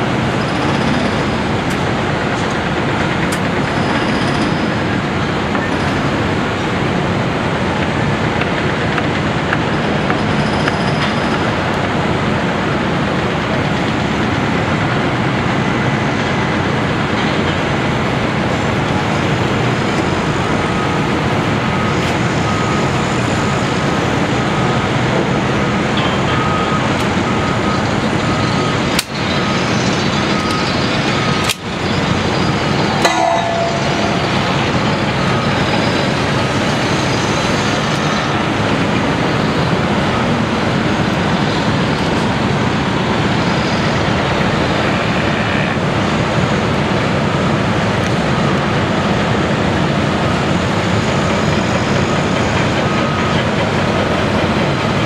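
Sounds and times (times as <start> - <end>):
city street traffic: 0.0 - 55.0
heavy construction machinery: 0.0 - 55.0
high beeps: 19.7 - 25.0, 25.6 - 37.2.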